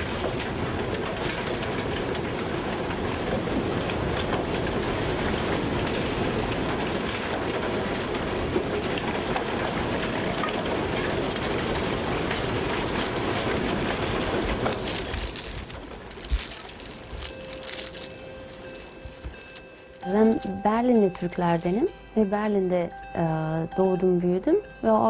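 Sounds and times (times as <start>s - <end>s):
waste tumbling in drum: 12.2s - 20.0s.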